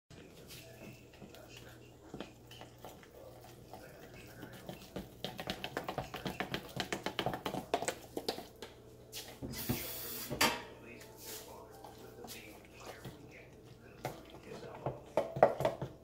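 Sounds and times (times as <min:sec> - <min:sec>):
utensil tapping plastic cup: 0:04.9 - 0:08.4.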